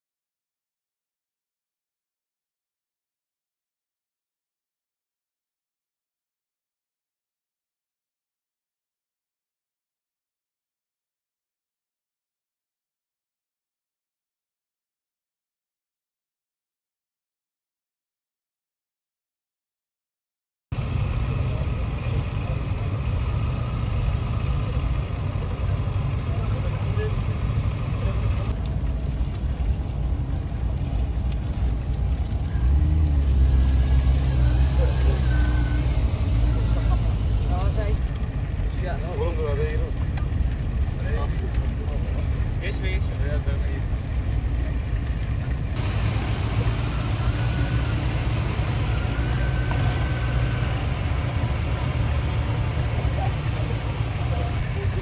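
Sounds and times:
vehicles rumbling along road: 20.7s - 55.0s
motorcycles running: 20.8s - 55.0s.

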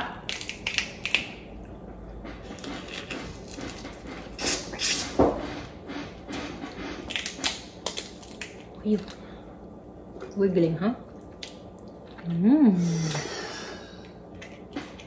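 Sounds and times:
crawfish shells cracking: 0.2s - 1.4s, 7.1s - 9.2s
slurping: 2.2s - 7.1s.

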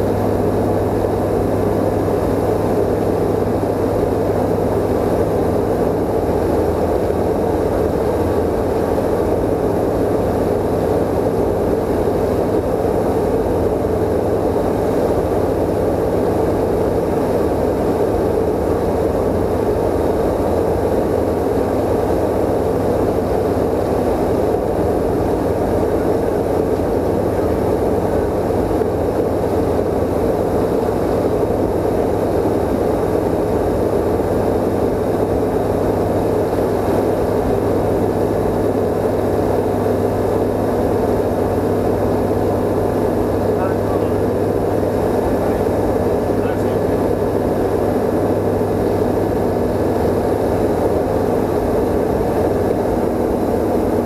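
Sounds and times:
aircraft engine and propeller drone: 0.0s - 54.0s.

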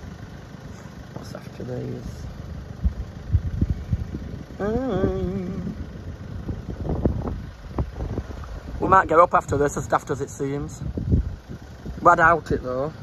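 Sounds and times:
vehicle engine idling: 0.0s - 13.0s
wind buffeting microphone: 2.8s - 9.8s, 10.6s - 12.6s
wavering voice: 4.5s - 5.9s.

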